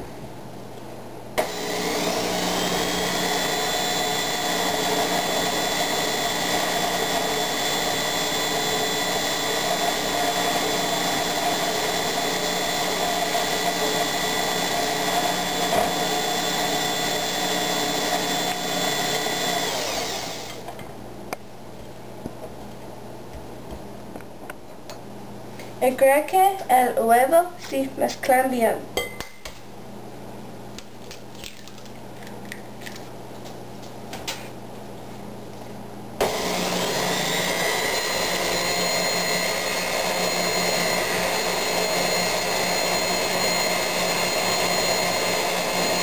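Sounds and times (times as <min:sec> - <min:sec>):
stand mixer motor whining: 0:01.4 - 0:20.6, 0:36.2 - 0:46.0.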